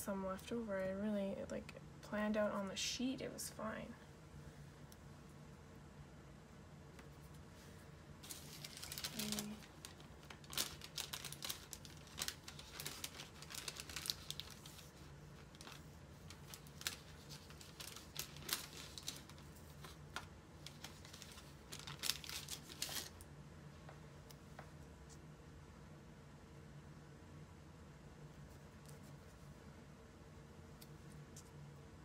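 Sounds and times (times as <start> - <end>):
paper crinkling and rustling: 7.0 - 23.2.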